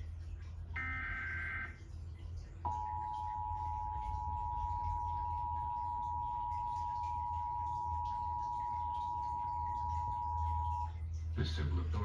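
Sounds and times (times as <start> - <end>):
two-tone alert signal: 0.8 - 1.8, 2.7 - 11.0.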